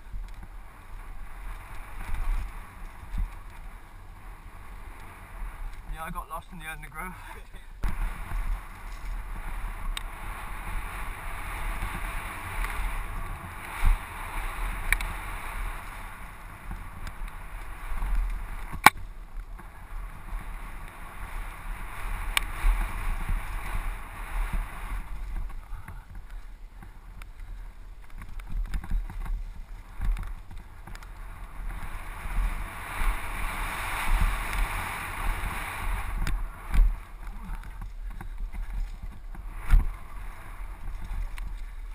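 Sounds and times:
bike tyres rumbling over dirt: 0.0s - 41.9s
wind rushing over microphone: 0.0s - 41.9s
bike knocks and rattles: 24.5s - 32.4s, 36.1s - 41.9s.

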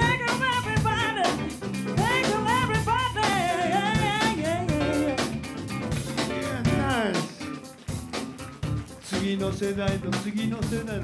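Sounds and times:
woman singing vocal runs: 0.0s - 5.3s
bass: 0.0s - 11.0s
drums: 0.0s - 11.0s.

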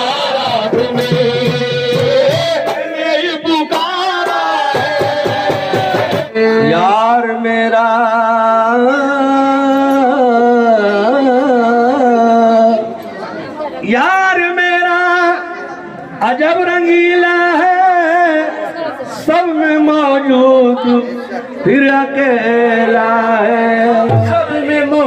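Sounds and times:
man singing into a microphone: 0.0s - 25.0s
instrumental accompaniment: 23.9s - 25.0s.

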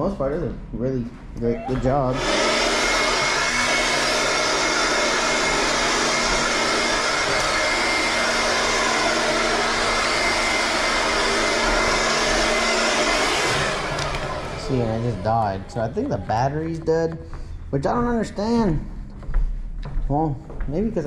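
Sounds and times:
cordless leaf blower running: 1.7s - 16.5s.

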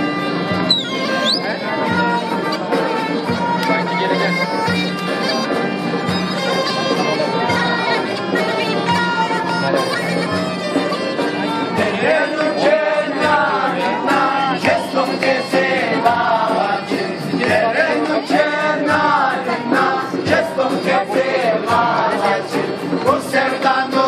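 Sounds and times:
bowed fiddle: 0.0s - 24.0s
strummed acoustic guitars: 0.0s - 24.0s
young men singing together: 11.6s - 24.0s.

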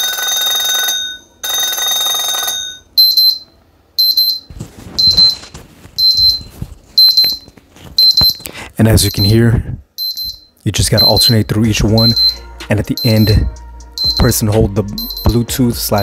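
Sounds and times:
held electronic alarm tones: 0.0s - 9.4s, 10.0s - 15.5s
high repeating beep: 10.0s - 15.6s.

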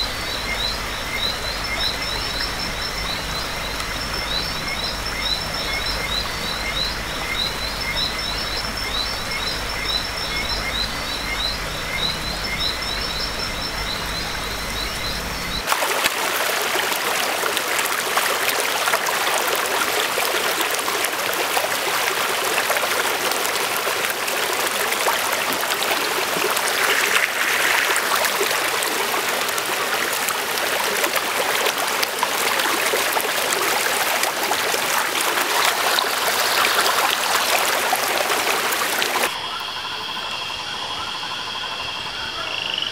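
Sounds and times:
stream trickling over rocks: 0.0s - 39.4s
frogs chirping: 0.0s - 42.9s.

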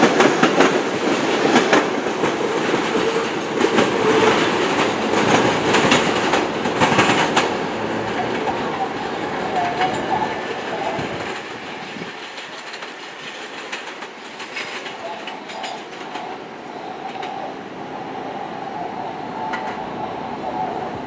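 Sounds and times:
wheels clicking over rail joints: 0.0s - 17.4s
subway train whine: 0.0s - 21.0s.

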